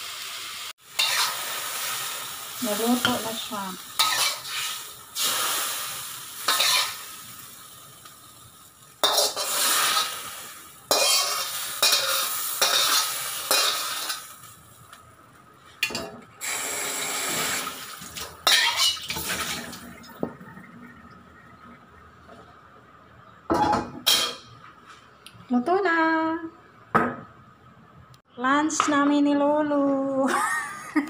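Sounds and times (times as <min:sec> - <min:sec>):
hot pan sizzling: 0:00.0 - 0:21.0
metal spatula scraping a wok: 0:01.0 - 0:01.4, 0:04.0 - 0:04.9, 0:06.5 - 0:07.0, 0:09.0 - 0:10.2, 0:10.9 - 0:14.2, 0:18.4 - 0:19.2.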